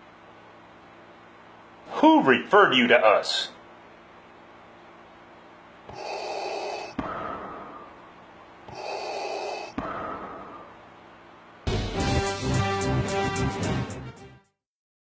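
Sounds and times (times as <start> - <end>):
mechanical respirator breathing: 5.9 - 8.1, 8.7 - 10.9.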